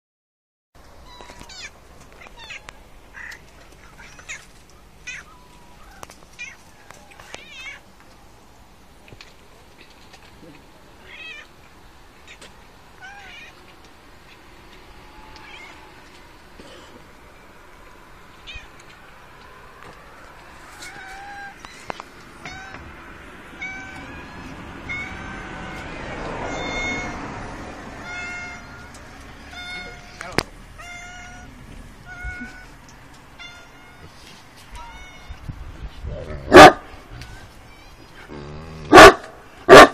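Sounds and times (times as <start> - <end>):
cats meowing: 1.0 - 7.9, 9.8 - 11.6, 12.2 - 16.4, 18.3 - 19.1, 19.8 - 39.0
cat meowing: 7.2 - 7.8, 13.0 - 13.6, 15.0 - 16.1, 18.4 - 18.8, 20.8 - 21.8, 22.4 - 22.9, 23.6 - 27.2, 28.0 - 32.8, 33.4 - 35.6.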